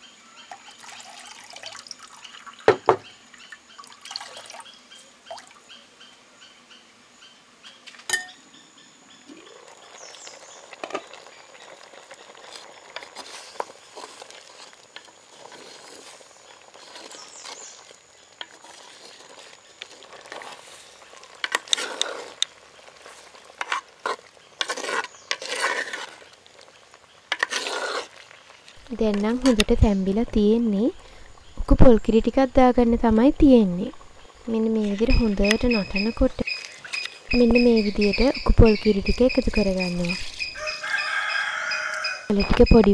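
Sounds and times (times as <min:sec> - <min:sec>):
wooden spoon scraping clay pot: 0:10.0 - 0:26.4, 0:27.3 - 0:31.2, 0:32.8 - 0:42.9.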